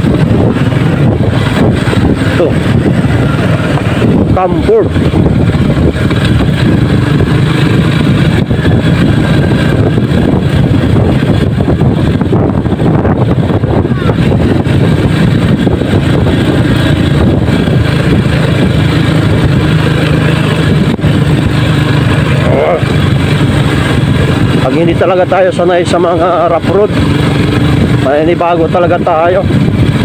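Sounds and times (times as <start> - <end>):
motorcycle engine running: 0.0 - 30.0
road noise: 0.0 - 30.0.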